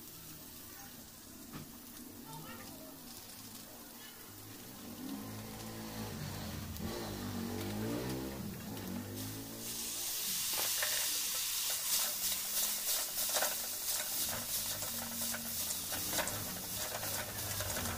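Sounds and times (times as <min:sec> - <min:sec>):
noodles sizzling in a wok: 0:00.0 - 0:17.9
spatula scraping against a pan: 0:08.8 - 0:17.9.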